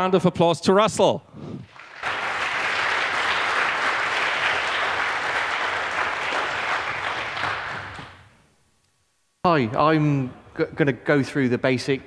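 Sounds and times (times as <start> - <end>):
audience applauding: 1.6 - 8.2.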